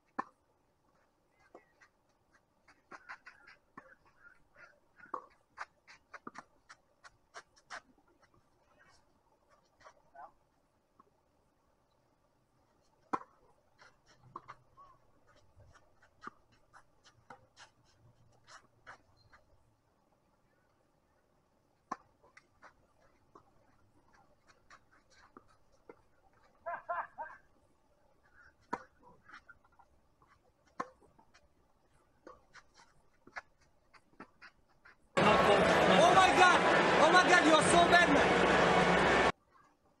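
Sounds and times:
tennis ball strikes and bounces: 0.1 - 0.4, 5.0 - 6.5, 13.1 - 14.8, 21.8 - 23.5, 28.6 - 29.5, 30.6 - 31.2.

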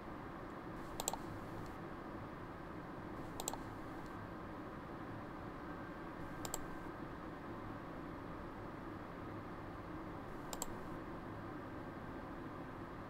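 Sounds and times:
steady low hum: 0.0 - 13.0
computer mouse clicking: 0.9 - 1.8, 3.2 - 4.2, 6.3 - 6.8, 10.4 - 10.9.

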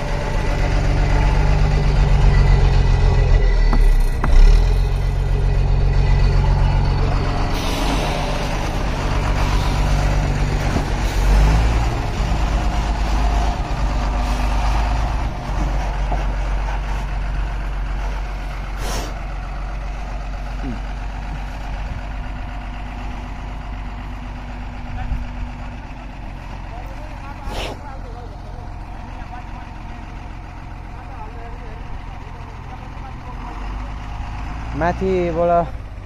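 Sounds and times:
diesel truck engine running: 0.0 - 36.0
air brakes hissing: 7.4 - 10.3, 18.7 - 19.2, 27.4 - 27.9.

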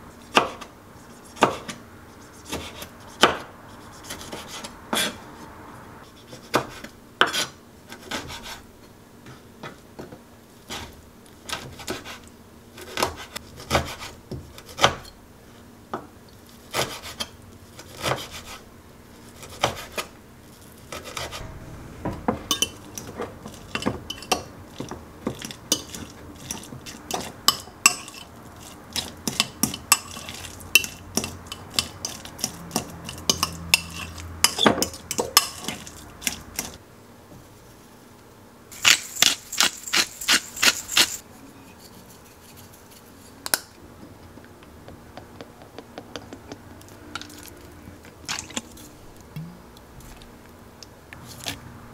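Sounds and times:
knife chopping on cutting board: 0.3 - 0.7, 1.4 - 1.8, 2.4 - 5.1, 6.3 - 8.6, 12.8 - 15.0, 16.7 - 18.6, 19.4 - 20.1.

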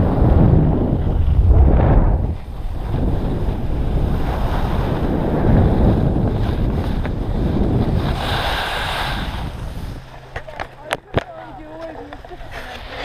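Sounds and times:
wind rushing over microphone: 0.0 - 13.0
skis hissing on snow: 2.4 - 10.1.

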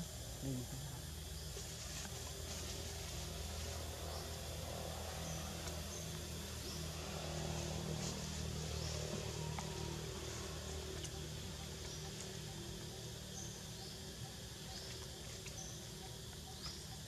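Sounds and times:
low hum: 0.0 - 17.0
faint ticks: 10.8 - 11.2.

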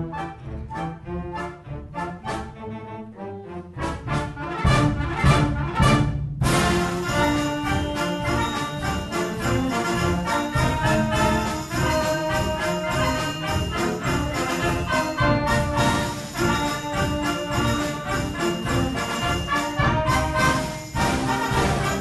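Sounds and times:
brass band playing: 0.0 - 22.0
sleigh bells shaking: 6.6 - 22.0.

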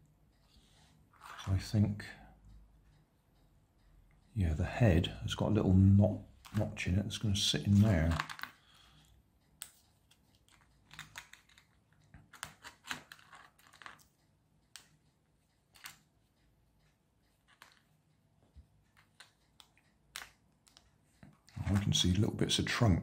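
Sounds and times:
plastic puzzle pieces clicking: 7.8 - 8.7, 9.6 - 15.0, 15.7 - 16.1, 17.4 - 17.9, 18.9 - 22.0.

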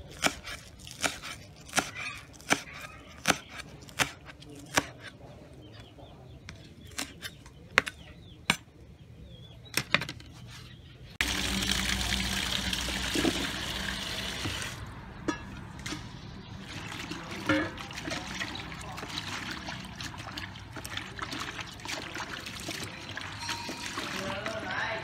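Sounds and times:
tap water running into tub: 11.2 - 14.8, 16.6 - 24.6.

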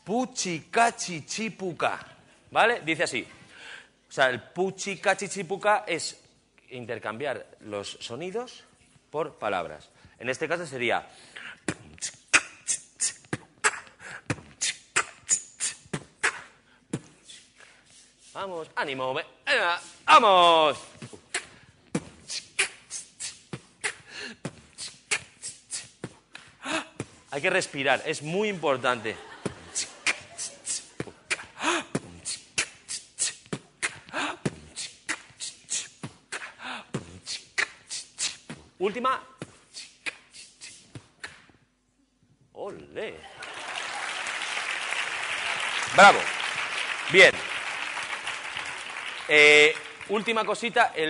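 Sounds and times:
beatboxing into a microphone: 11.4 - 19.1, 19.7 - 41.7.

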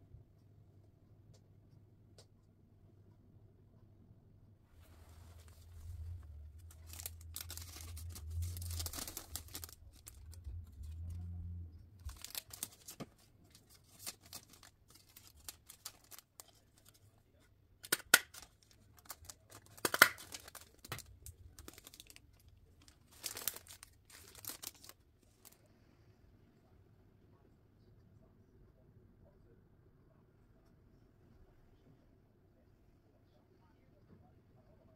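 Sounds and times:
low hum: 3.3 - 12.6
plastic bags crinkling: 5.2 - 11.3, 12.0 - 17.0, 17.8 - 25.6.

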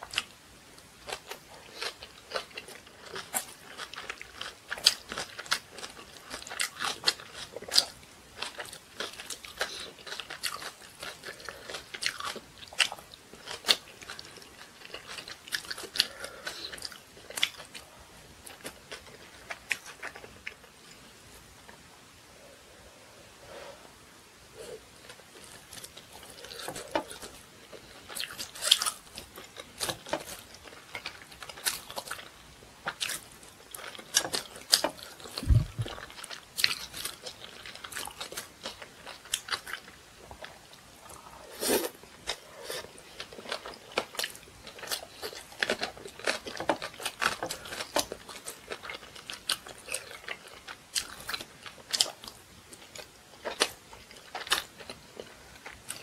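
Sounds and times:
person chewing with crunches: 0.0 - 21.5, 24.5 - 56.0
dull low thump: 35.4 - 36.0.

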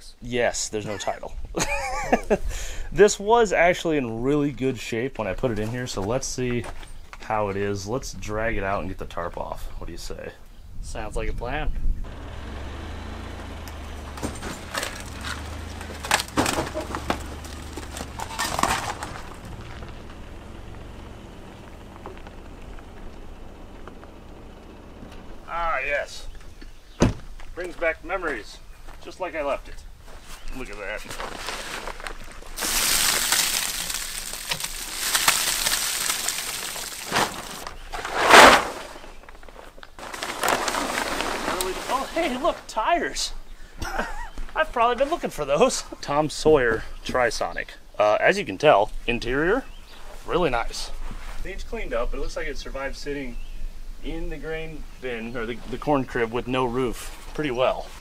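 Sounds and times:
vehicle engine idling: 12.0 - 26.6
plastic tarp crinkling: 12.1 - 22.9, 30.6 - 42.7
crunches and knocks: 12.1 - 24.2.

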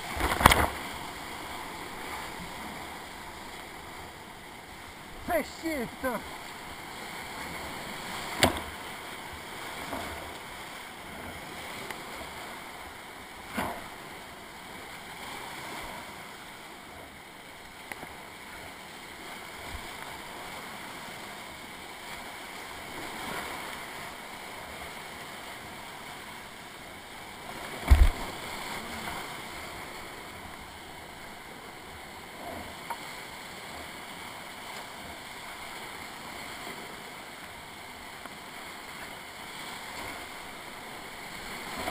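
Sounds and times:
whitewater rapids rushing: 0.0 - 12.8
paddle splashes: 0.0 - 41.9
sharp thump: 27.9 - 28.2.

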